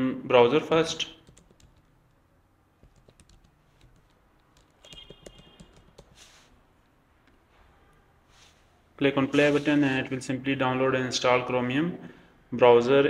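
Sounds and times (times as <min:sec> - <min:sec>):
faint keyboard typing: 0:01.0 - 0:07.4.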